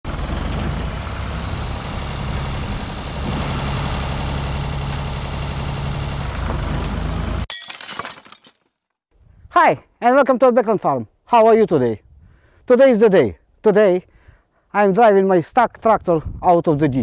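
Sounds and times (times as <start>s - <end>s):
diesel tractor engine running: 0.1s - 7.5s.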